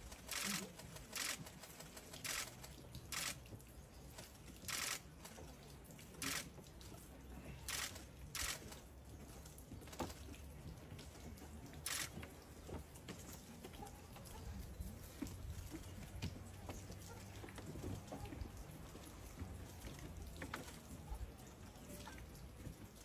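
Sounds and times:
camera shutter clicks: 0.2 - 1.4, 2.2 - 3.4, 4.7 - 5.0, 7.7 - 8.7, 11.9 - 12.1.

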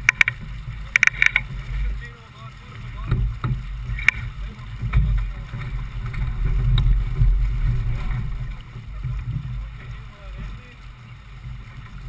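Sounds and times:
sharp clicks: 0.0 - 1.5
water rushing along boat hull: 0.0 - 12.0
wind rumbling on microphone: 0.0 - 12.0.

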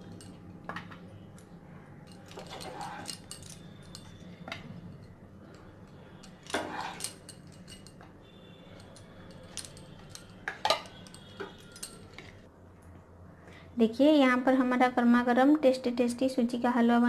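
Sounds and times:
spatula scraping glass bowl: 2.4 - 3.3, 6.4 - 7.2.

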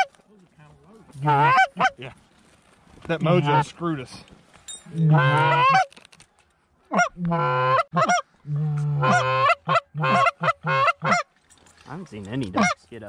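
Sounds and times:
goose call honks: 1.2 - 2.0, 3.3 - 3.7, 5.0 - 5.9, 6.9 - 11.2, 12.4 - 12.8.

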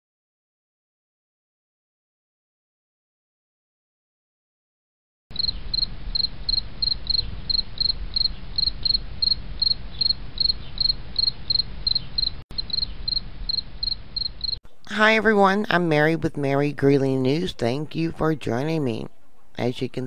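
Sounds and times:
insect chirping: 5.3 - 14.6.

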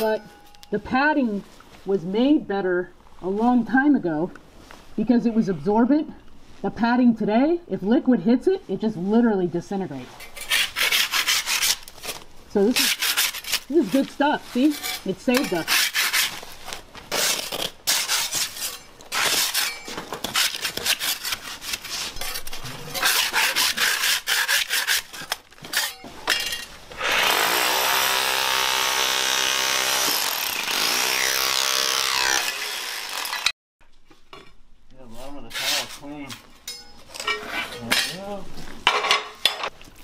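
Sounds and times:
power tool running: 27.0 - 33.6.

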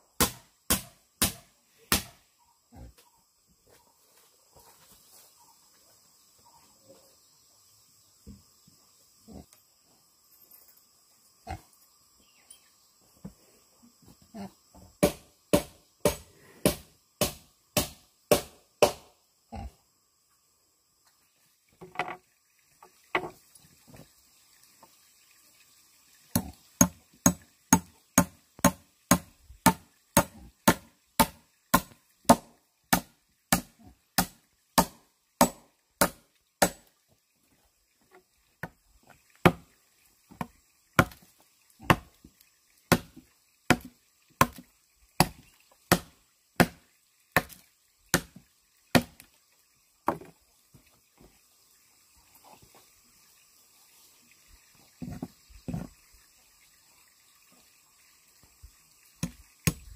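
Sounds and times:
blade chopping wood: 0.2 - 2.2, 15.0 - 19.1, 26.3 - 36.9, 39.4 - 39.6, 40.4 - 41.2, 41.9 - 42.1, 42.9 - 44.6, 45.2 - 46.8, 47.4 - 49.2, 59.2 - 59.9.

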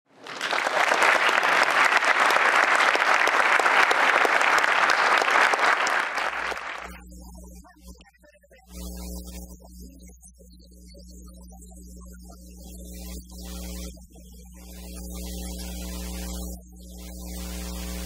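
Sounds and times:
audience applauding: 0.1 - 7.0
faint low hum: 1.1 - 18.0.

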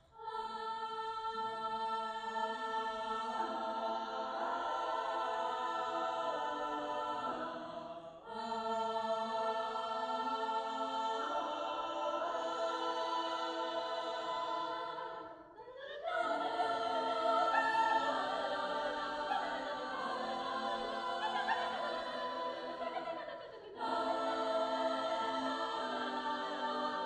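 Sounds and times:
children's choir singing a cappella: 0.0 - 27.0.

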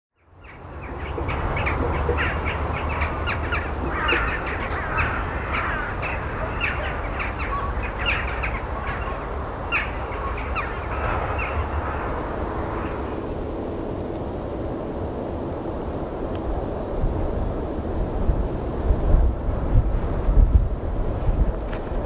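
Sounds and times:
steady low rumble: 0.3 - 21.7
crows cawing: 0.4 - 13.2.

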